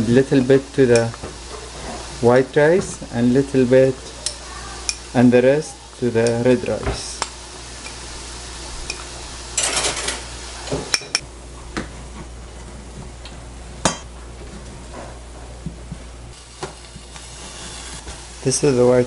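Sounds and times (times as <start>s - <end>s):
onion sizzling in pan: 0.0s - 11.2s, 16.3s - 19.0s.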